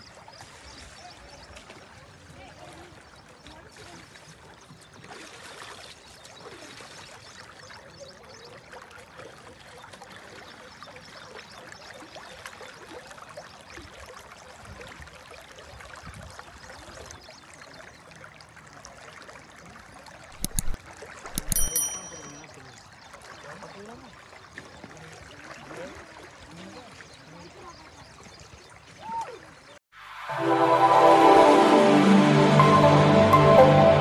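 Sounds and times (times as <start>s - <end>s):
floodwater flowing: 0.0s - 11.4s, 29.9s - 34.0s.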